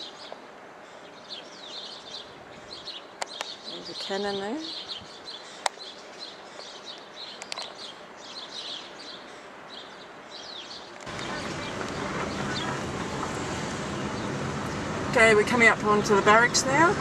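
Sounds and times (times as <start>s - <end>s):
small birds chirping: 0.0s - 16.8s
car driving rumble from inside: 11.1s - 17.0s.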